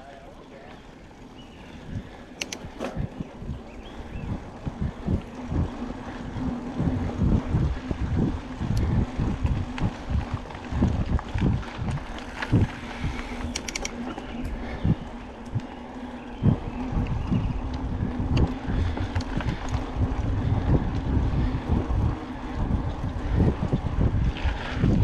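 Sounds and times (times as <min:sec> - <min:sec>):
bike rattling over dirt: 0:00.0 - 0:25.0
low hum: 0:00.0 - 0:25.0
wind noise on microphone: 0:01.4 - 0:25.0
sharp clicks: 0:02.4 - 0:03.2, 0:13.3 - 0:14.2.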